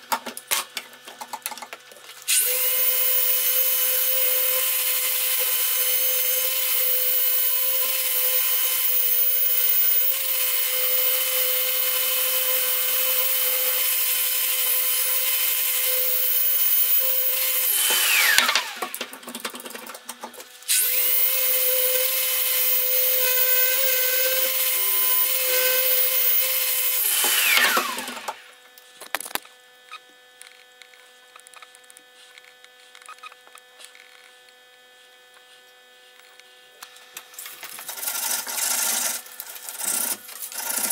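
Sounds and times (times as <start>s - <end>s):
orbital sander grinding metal: 2.4s - 19.0s, 20.8s - 28.6s.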